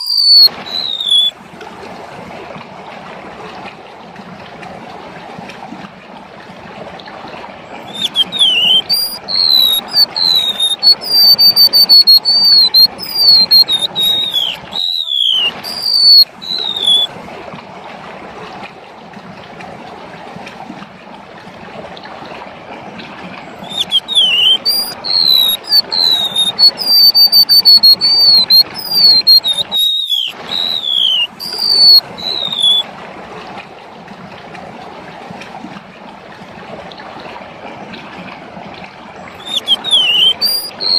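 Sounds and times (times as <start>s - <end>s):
bird singing whistled notes: 0.0s - 1.3s, 7.9s - 17.1s, 23.6s - 32.8s, 39.4s - 40.9s
running water: 0.0s - 40.9s.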